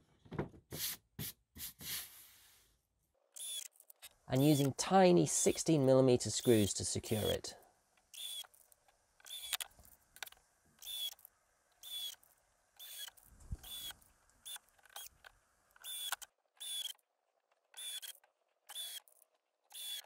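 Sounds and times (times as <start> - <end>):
drill driving screws into wood: 3.4 - 3.8, 8.1 - 8.6, 9.2 - 9.7, 10.8 - 11.2, 11.8 - 12.2, 12.8 - 15.2, 15.8 - 17.0, 17.7 - 20.0.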